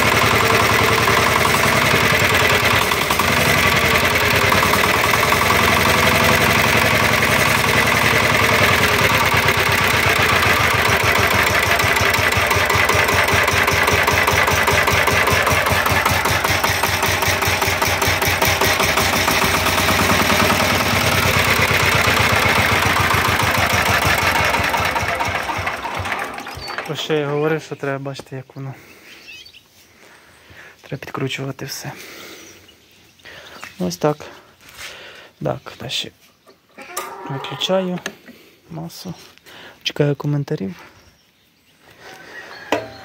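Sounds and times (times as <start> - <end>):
diesel engine idling: 0.0 - 27.6.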